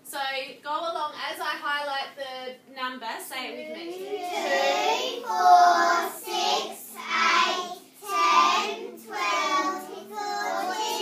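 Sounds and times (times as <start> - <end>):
children chanting numbers: 3.9 - 11.0.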